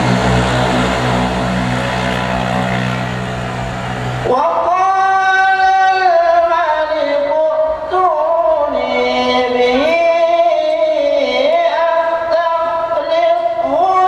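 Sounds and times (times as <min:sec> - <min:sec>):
man chanting melodic recitation: 0:04.2 - 0:14.0.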